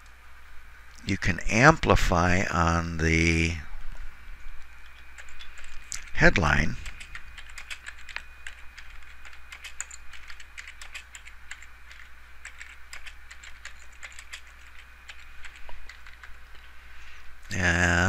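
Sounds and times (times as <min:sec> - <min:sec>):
faint low hum: 0:00.0 - 0:18.0
keyboard typing: 0:04.8 - 0:06.1, 0:06.8 - 0:16.4.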